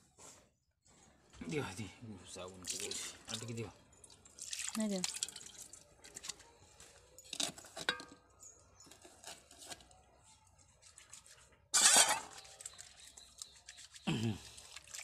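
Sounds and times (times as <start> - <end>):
steel bowl clinking: 2.8 - 5.8.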